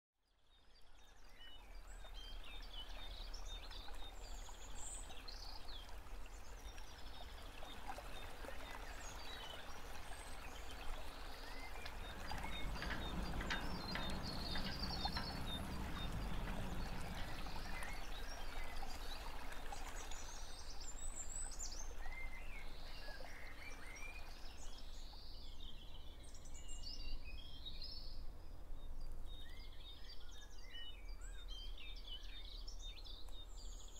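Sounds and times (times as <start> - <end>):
birds singing and chirping: 11.2 - 19.2.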